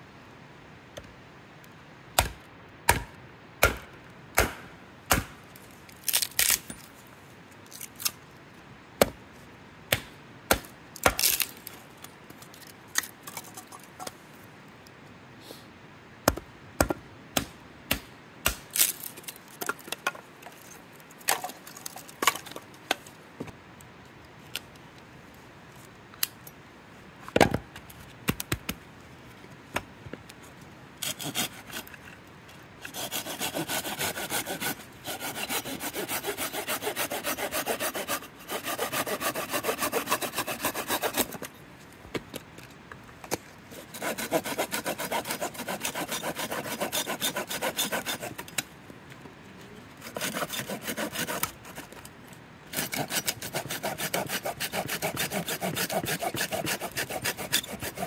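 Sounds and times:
hand saw rasping through wood: 31.0s - 31.9s, 32.8s - 41.4s, 43.7s - 48.5s, 50.0s - 51.9s, 52.7s - 58.0s.

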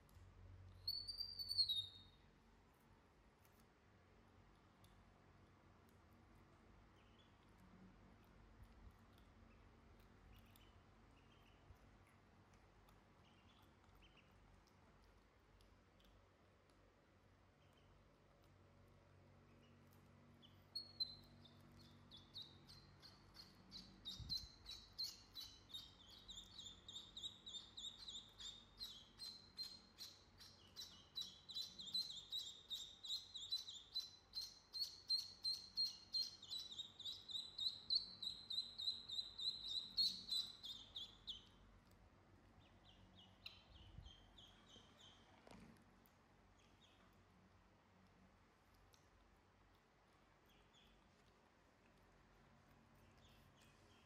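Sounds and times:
ducklings peeping: 0.8s - 2.3s, 6.8s - 7.6s, 9.0s - 45.6s, 46.4s - 47.3s, 52.9s - 54.0s.

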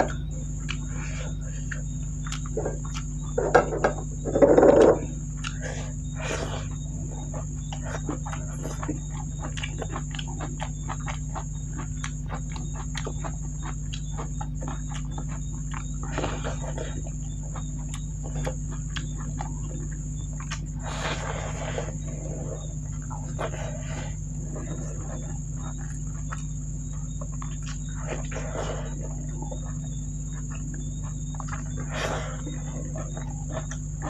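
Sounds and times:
chewing and lip-smacking: 0.0s - 34.0s.

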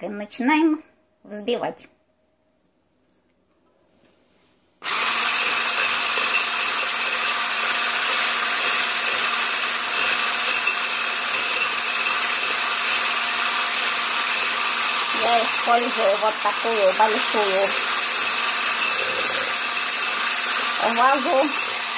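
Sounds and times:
electric hand blender whirring: 4.8s - 21.9s.

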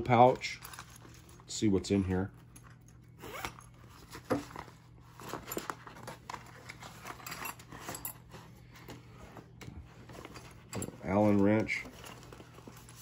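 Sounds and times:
metal tools clinking: 0.0s - 3.8s, 6.7s - 8.5s, 10.1s - 12.5s.

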